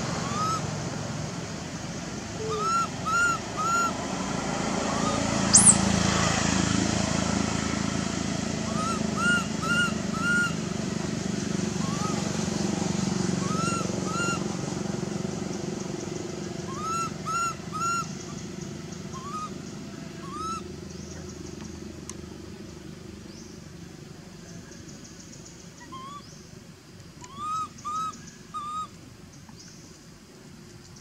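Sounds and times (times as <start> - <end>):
baby monkey crying: 0.2 - 0.6, 2.4 - 4.0, 8.7 - 10.6, 11.8 - 12.2, 13.4 - 14.5, 16.6 - 18.1, 19.1 - 19.5, 27.3 - 28.9.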